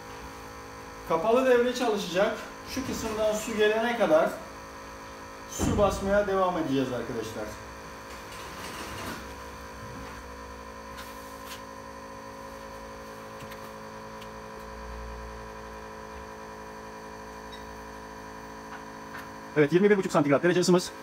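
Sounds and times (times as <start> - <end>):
electric water pump humming: 0.0 - 21.0.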